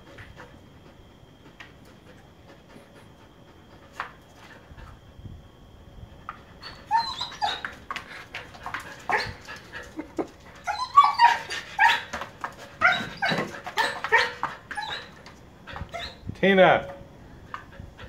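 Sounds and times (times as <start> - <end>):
dog barking and yelping: 6.6 - 7.9, 8.9 - 16.2.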